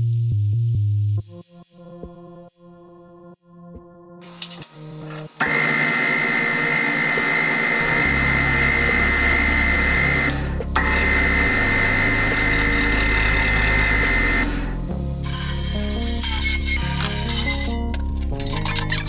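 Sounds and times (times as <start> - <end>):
electric motor whining: 4.3 - 17.7.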